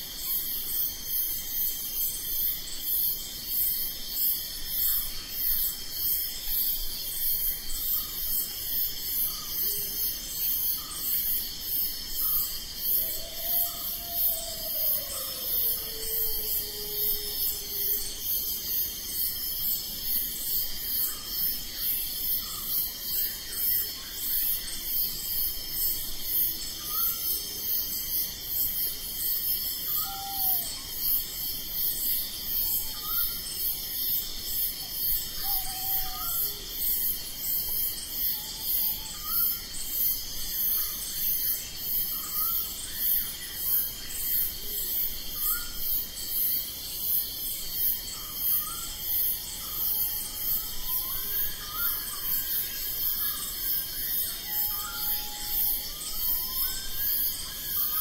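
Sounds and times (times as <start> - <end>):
crickets trilling: 0.0 - 58.0
pulsing insect chirp: 0.0 - 58.0
short rising insect calls: 29.0 - 41.2, 47.8 - 58.0.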